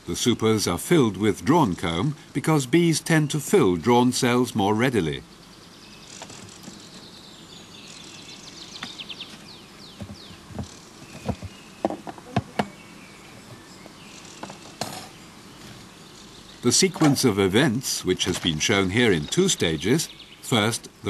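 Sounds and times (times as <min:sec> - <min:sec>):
bees buzzing: 0:00.0 - 0:21.0.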